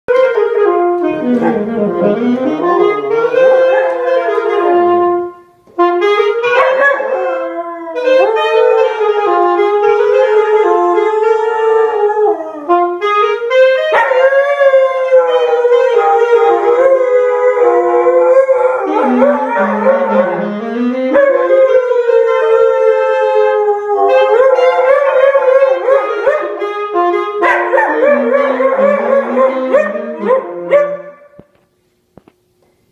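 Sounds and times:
alto saxophone melody: 0.1s - 31.4s
dog howling: 6.5s - 12.7s, 14.0s - 20.4s, 21.1s - 26.6s, 27.5s - 31.0s.

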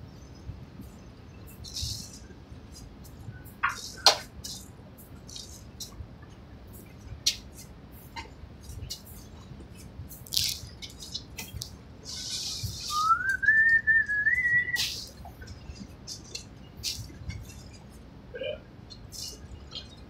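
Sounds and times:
person whistling rising note: 12.8s - 14.8s.

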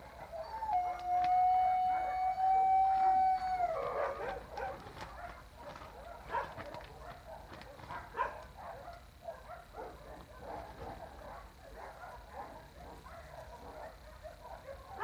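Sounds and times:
dog howling: 0.0s - 7.2s.

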